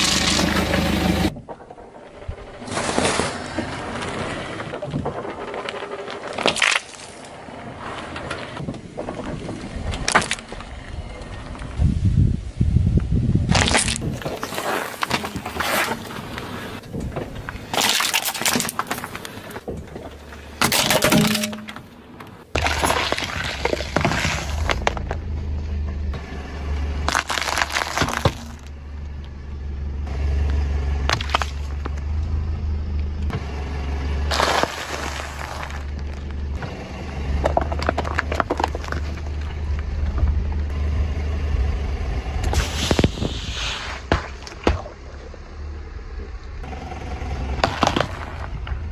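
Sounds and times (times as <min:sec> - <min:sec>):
low engine hum: 0:00.0 - 0:02.8, 0:23.7 - 0:48.9
objects cracking under car tyre: 0:00.0 - 0:11.8, 0:13.4 - 0:25.4, 0:27.0 - 0:29.4, 0:30.4 - 0:32.2, 0:34.3 - 0:40.8, 0:47.6 - 0:48.9.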